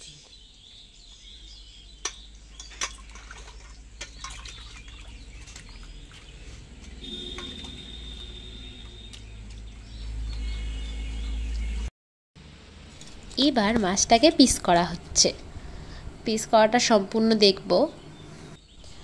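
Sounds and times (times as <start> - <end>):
water sloshing in a steel bowl: 2.0 - 10.4.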